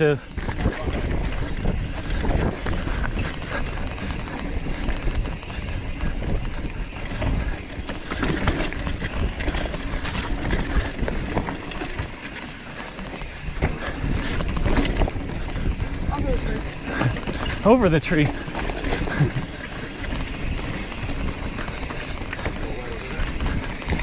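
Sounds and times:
wind on microphone: 0.0s - 12.2s
bike tyres rumbling on dirt trail: 0.0s - 24.0s
bike clattering over rocks: 0.2s - 24.0s.

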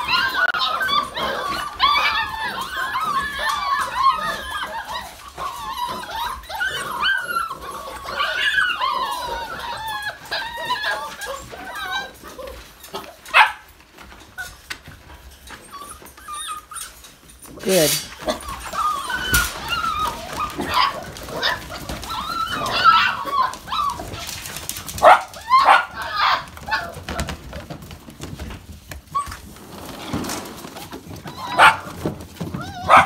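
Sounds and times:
puppies whining and yipping: 0.0s - 33.0s.

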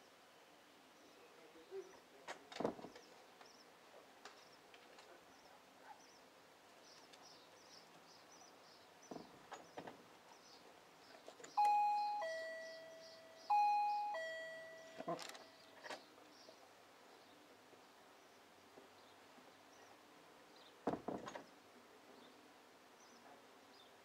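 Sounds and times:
faint birdsong: 0.0s - 24.0s
two-tone doorbell chime: 11.6s - 15.8s.

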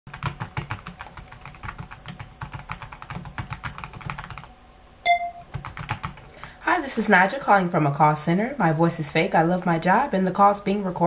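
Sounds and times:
fast keyboard typing: 0.1s - 4.5s, 5.1s - 6.5s.

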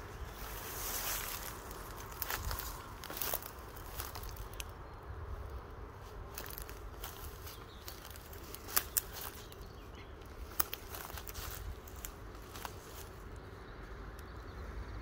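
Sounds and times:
footsteps through dry leaves: 0.0s - 13.4s
steady low rumble: 0.0s - 15.0s
twigs snapping: 1.0s - 4.8s, 6.3s - 9.6s, 10.2s - 13.1s.

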